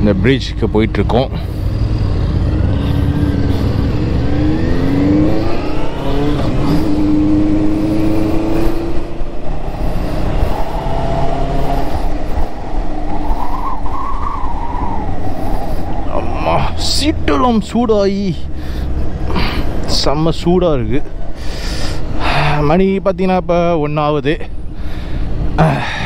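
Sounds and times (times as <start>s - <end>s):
motorcycle engine pulling away: 1.5s - 12.4s
wind rumble on microphone: 1.6s - 17.0s.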